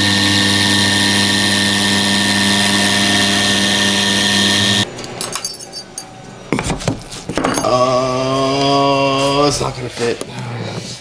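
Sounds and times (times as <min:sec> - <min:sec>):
router spindle cutting: 0:00.0 - 0:04.9.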